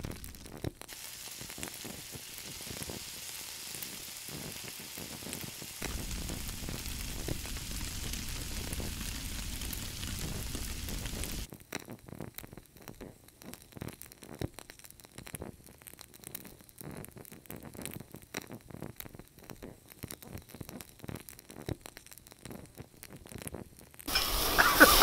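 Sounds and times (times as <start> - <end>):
sharp pops: 5.3 - 11.5
fat spitting and crackling: 23.4 - 25.0.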